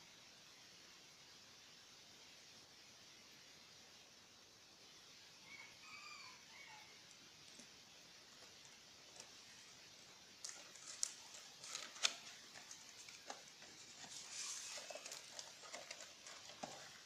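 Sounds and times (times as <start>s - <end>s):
packaging clicks and rustles: 8.3s - 17.0s.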